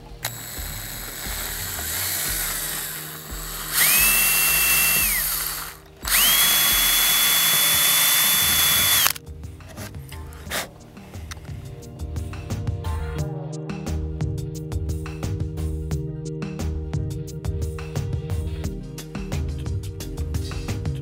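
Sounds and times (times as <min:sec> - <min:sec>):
cordless drill whining: 0:00.0 - 0:09.2.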